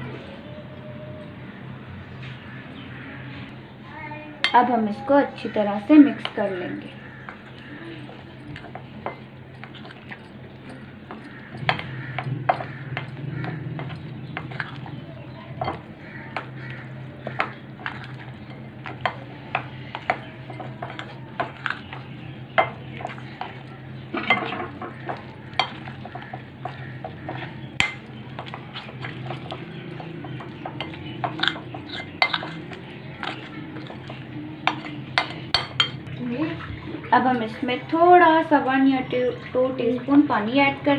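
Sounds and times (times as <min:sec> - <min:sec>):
steady low hum: 0:00.0 - 0:40.9
spoon clinking and scraping glass: 0:07.3 - 0:13.2, 0:13.8 - 0:15.0, 0:17.3 - 0:36.1.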